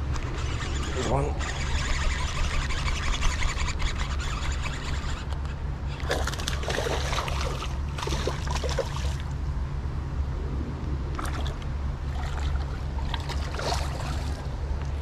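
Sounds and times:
low rumble: 0:05.6 - 0:15.0
fish splashing in water: 0:06.0 - 0:09.4, 0:11.1 - 0:14.6.

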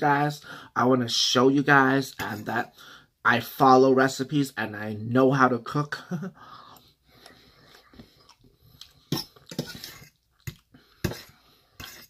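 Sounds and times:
chewing: 0:07.2 - 0:10.8.

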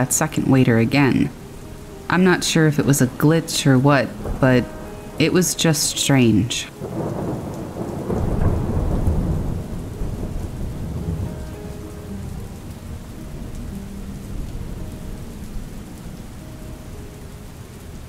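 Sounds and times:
steady rain: 0:00.0 - 0:18.0
rolling thunder: 0:04.1 - 0:05.3, 0:06.7 - 0:16.3.

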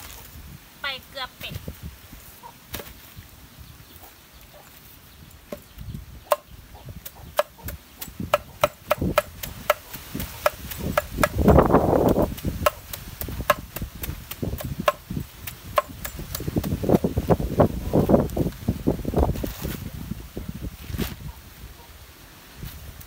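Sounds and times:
sharp chopping strokes: 0:06.3 - 0:17.0.

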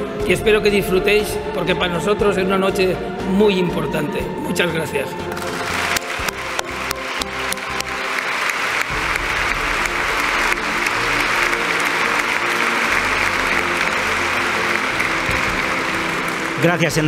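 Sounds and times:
background music: 0:00.0 - 0:17.0
large crowd applauding: 0:05.3 - 0:17.0.

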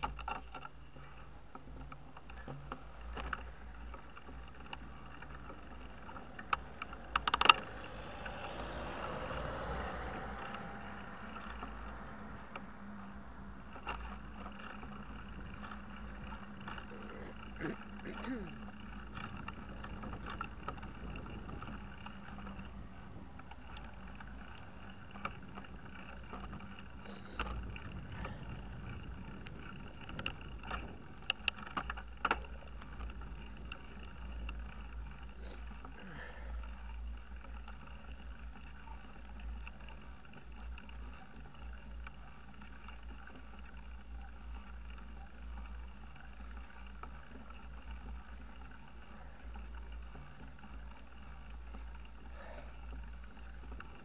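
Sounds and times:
bike clicks and rattles: 0:00.0 - 0:54.0
tyres rumbling on tarmac: 0:00.0 - 0:54.0
wind buffeting microphone: 0:18.6 - 0:35.0.

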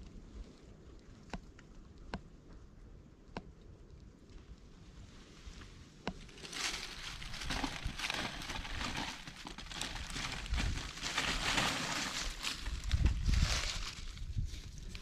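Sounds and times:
dry leaves rustling and crackling: 0:06.2 - 0:15.0.

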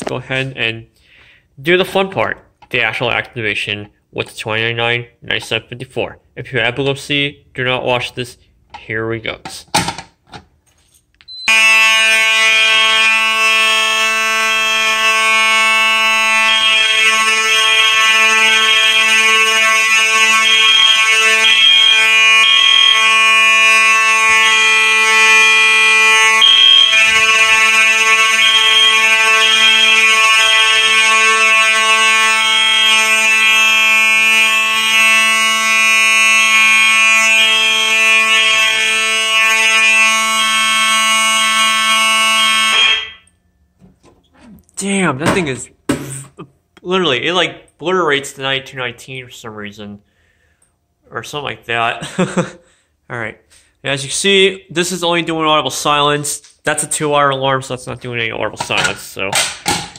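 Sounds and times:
pulsing high-pitched horn tone: 0:11.3 - 0:43.3
buzzing fire alarm horn: 0:11.3 - 0:43.8.

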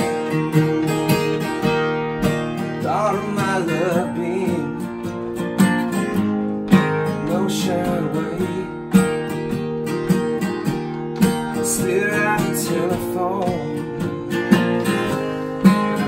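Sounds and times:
acoustic guitars strumming: 0:00.0 - 0:16.0.

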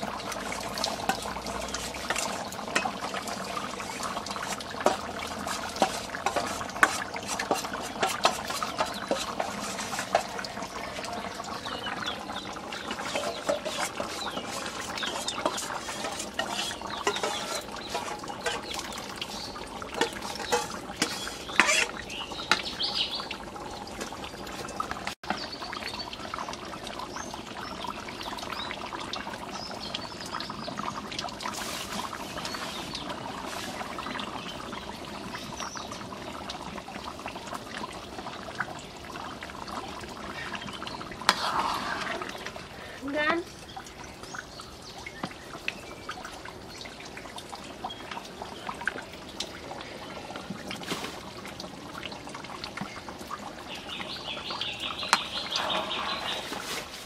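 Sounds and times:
liquid sloshing: 0:00.0 - 0:25.2, 0:55.0 - 0:57.0
curry bubbling: 0:00.0 - 0:57.0
liquid pouring into pot: 0:00.0 - 0:57.0
ladle scraping steel bowl: 0:00.9 - 0:10.8, 0:12.8 - 0:22.7, 0:41.2 - 0:42.6, 0:55.1 - 0:57.0.

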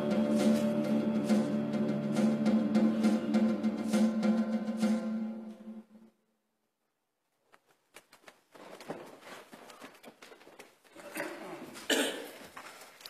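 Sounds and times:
rustling of robes and folders: 0:07.2 - 0:13.0.

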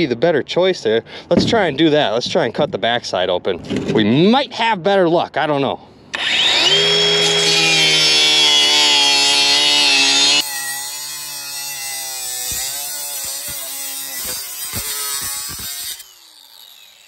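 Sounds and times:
angle grinder cutting metal: 0:06.1 - 0:17.0.

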